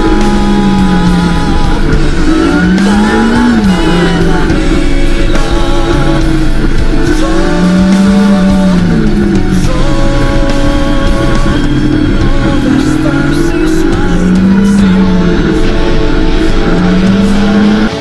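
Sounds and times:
held chords: 0:00.0 - 0:18.0
person singing: 0:00.0 - 0:18.0.

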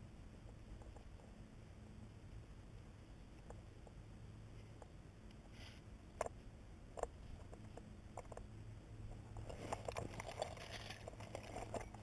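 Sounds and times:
rope clicking and rustling: 0:09.1 - 0:12.0.

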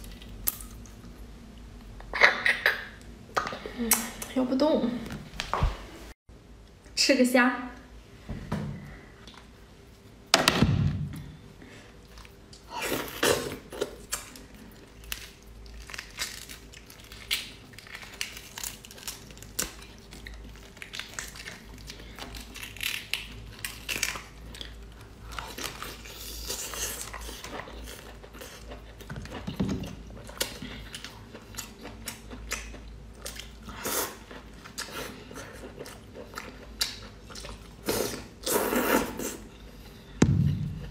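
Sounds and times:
prawn shell crackling and tearing: 0:14.0 - 0:27.6.

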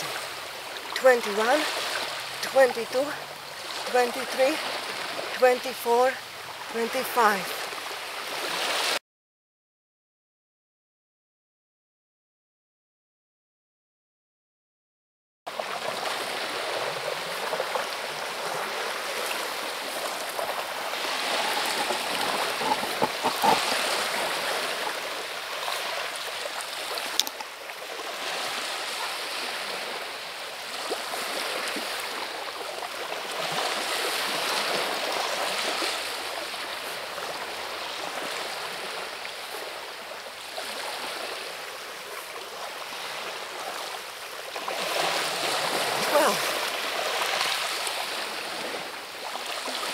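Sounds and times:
waves washing onto pebbles: 0:15.5 - 0:49.9.

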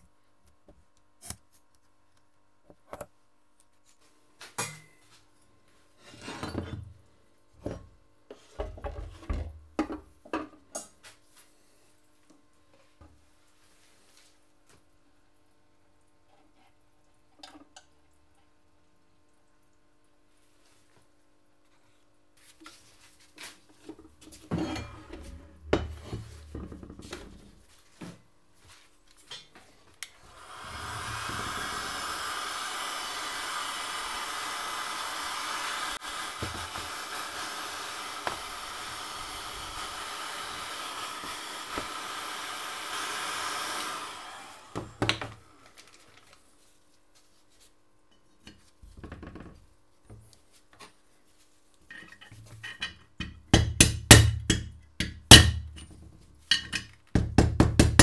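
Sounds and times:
tools knocking on wooden bench: 0:25.6 - 0:27.2
heat gun blowing: 0:30.1 - 0:45.7.

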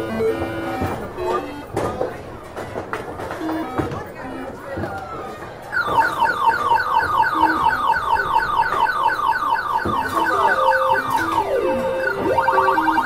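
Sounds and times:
rapid high electronic beeps: 0:10.0 - 0:13.0.

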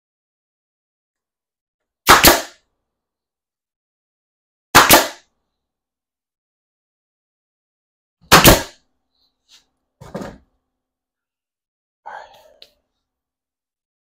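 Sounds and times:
sharp bangs on wood: 0:02.0 - 0:02.6, 0:04.8 - 0:05.3, 0:08.3 - 0:08.8
soft knocks: 0:10.0 - 0:10.4.

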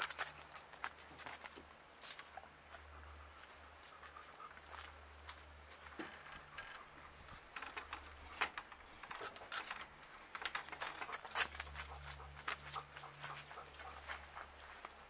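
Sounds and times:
footsteps on dirt and gravel: 0:00.0 - 0:06.6, 0:10.6 - 0:15.0.

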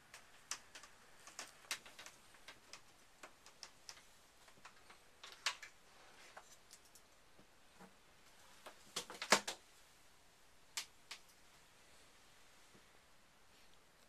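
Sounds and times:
faint irregular clicks: 0:00.0 - 0:09.6, 0:10.7 - 0:11.6.

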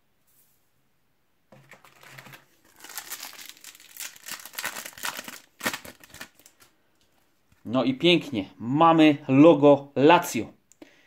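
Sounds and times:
foil wrapper crinkling and tearing: 0:01.6 - 0:06.7.

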